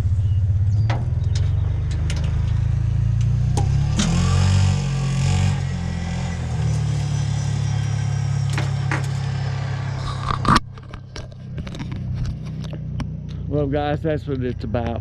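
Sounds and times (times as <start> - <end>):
vehicle engine idling: 0.0 - 4.0, 5.6 - 15.0.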